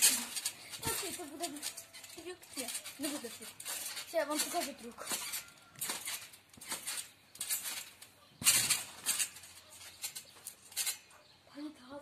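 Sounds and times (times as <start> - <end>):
trampoline thuds: 0.0 - 11.1.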